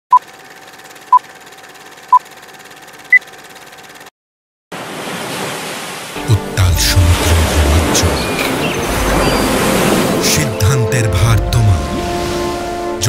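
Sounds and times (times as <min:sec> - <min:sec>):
ocean surf: 0:04.7 - 0:13.0.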